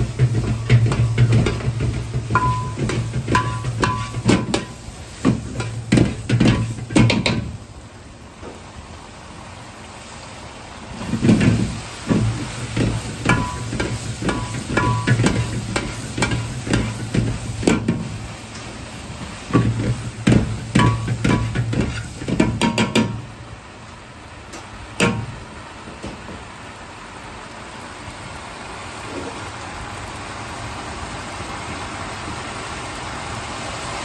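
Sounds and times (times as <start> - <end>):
frying sizzle: 0.0 - 34.0
metal ladle scraping a wok: 0.2 - 7.0, 19.5 - 22.5.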